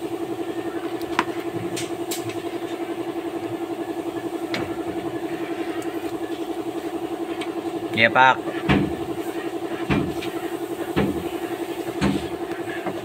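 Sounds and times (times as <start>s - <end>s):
engine idling: 0.0s - 13.0s.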